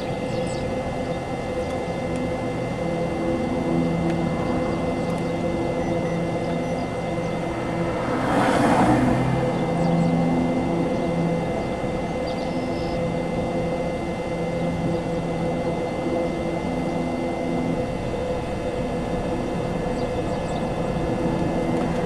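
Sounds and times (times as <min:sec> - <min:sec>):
vehicle engine idling: 0:00.0 - 0:22.0.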